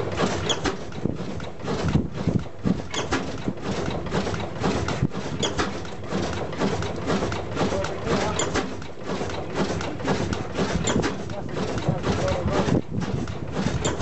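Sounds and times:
oil engine running: 0.0s - 14.0s.

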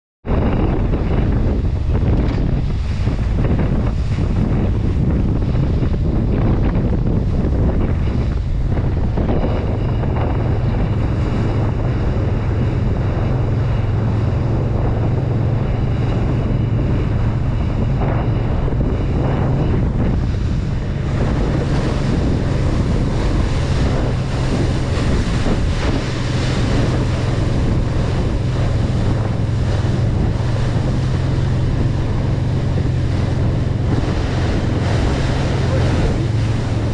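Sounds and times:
motorboat engine drone: 0.2s - 36.9s
wind noise on microphone: 0.2s - 36.9s
water spray splashing off hull: 19.8s - 36.9s.

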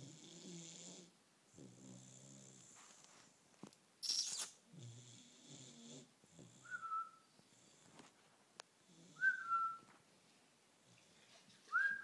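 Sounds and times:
puppy snoring: 0.0s - 2.8s, 4.2s - 8.0s, 8.8s - 9.6s.

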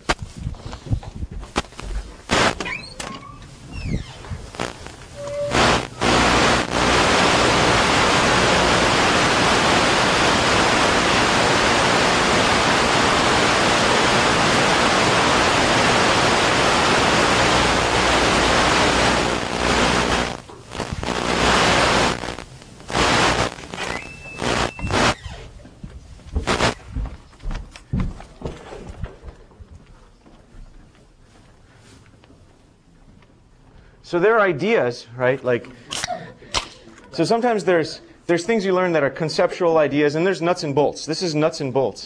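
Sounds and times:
static hiss: 1.5s - 3.2s, 3.8s - 25.4s, 26.4s - 26.8s.

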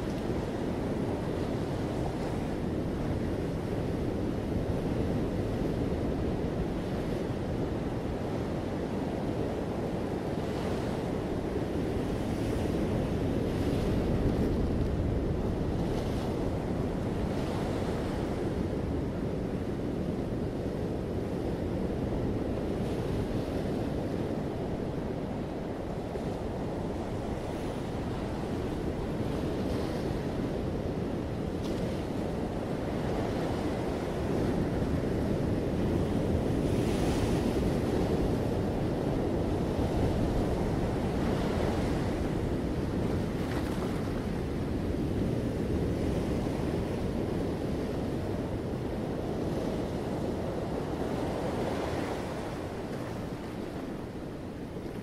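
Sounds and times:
wind buffeting microphone: 0.0s - 55.0s
waves breaking on rocky shore: 32.0s - 55.0s.

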